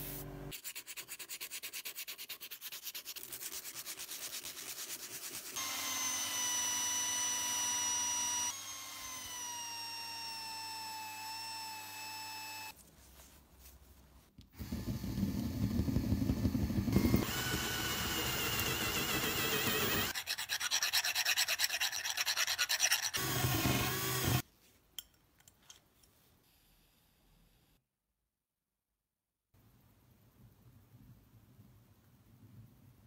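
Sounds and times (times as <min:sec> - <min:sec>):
drill boring through metal: 0:05.6 - 0:12.7, 0:16.9 - 0:20.2, 0:23.2 - 0:24.4
buffing wheel whining: 0:14.6 - 0:20.1
hand sanding metal: 0:18.6 - 0:23.2.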